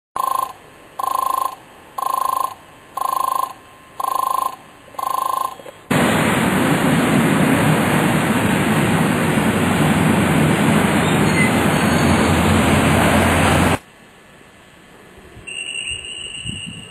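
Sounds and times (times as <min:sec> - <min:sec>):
level-crossing signal beeping: 0:00.2 - 0:05.8, 0:15.5 - 0:16.9
loud rushing noise: 0:05.9 - 0:13.8.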